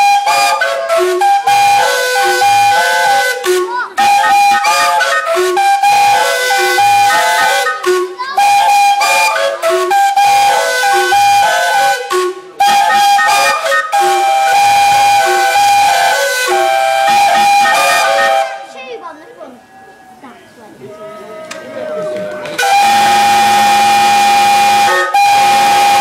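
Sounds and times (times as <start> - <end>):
steam locomotive whistles playing tune: 0.0 - 18.7, 22.6 - 26.0
steam hissing: 22.6 - 26.0.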